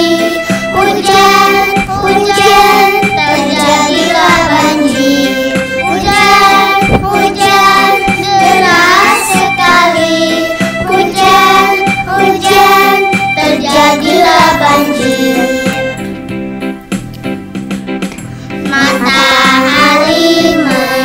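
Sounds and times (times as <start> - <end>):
child singing: 0.0 - 15.8, 18.7 - 21.0
instrumental backing track: 0.0 - 21.0.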